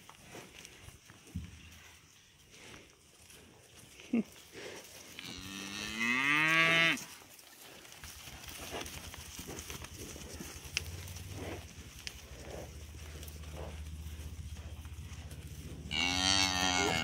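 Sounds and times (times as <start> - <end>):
cow mooing: 5.2 - 7.0, 15.5 - 17.0.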